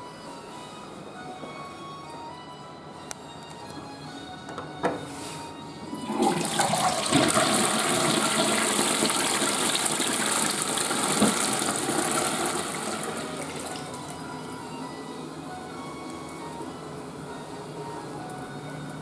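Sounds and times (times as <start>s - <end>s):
sink flushing water rushing: 5.9s - 14.1s.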